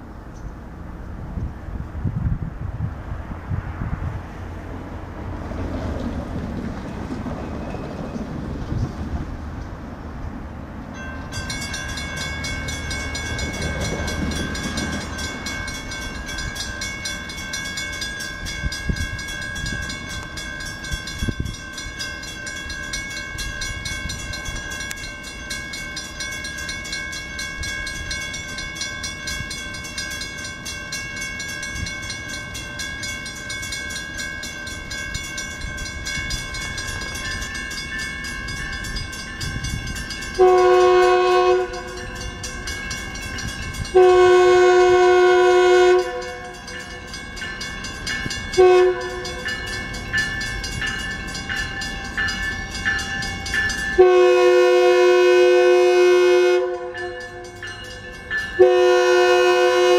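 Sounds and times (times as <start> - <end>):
train rumble: 0.0 - 59.9
railroad crossing bell ringing: 6.7 - 8.4, 10.8 - 59.9.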